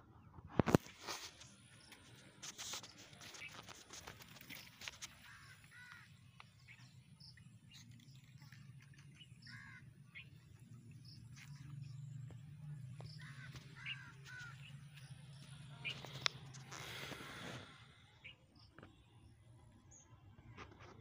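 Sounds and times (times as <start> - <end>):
crows cawing: 5.1 - 6.2, 9.4 - 10.0, 13.0 - 15.0.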